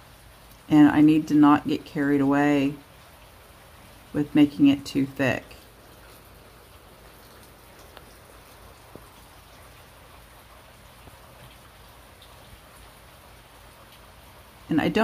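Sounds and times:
steady low hiss: 0:00.0 - 0:15.0
faint ticks: 0:07.2 - 0:09.6.

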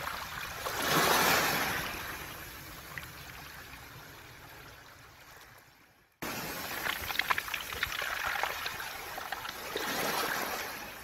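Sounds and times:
wave washing over pebbles: 0:06.2 - 0:11.0.

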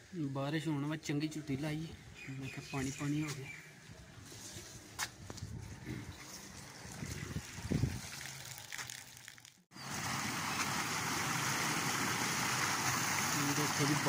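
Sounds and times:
water gushing into drain: 0:06.4 - 0:14.0.

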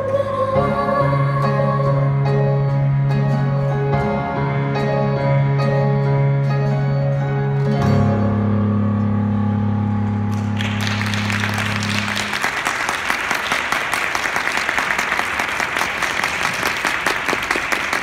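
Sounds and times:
held keyboard chord: 0:00.0 - 0:12.6
audience applause: 0:10.3 - 0:18.0.

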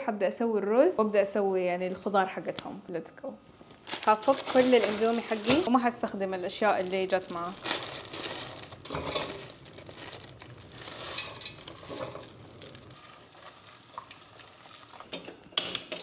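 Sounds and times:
plastic packets tearing and crinkling: 0:03.7 - 0:15.1
kitchen handling noises: 0:04.4 - 0:05.8, 0:08.8 - 0:09.5, 0:11.0 - 0:12.3.

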